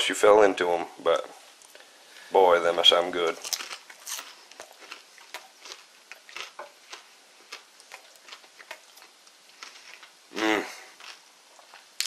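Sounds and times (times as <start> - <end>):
crunchy chewing of fried food: 1.7 - 12.0.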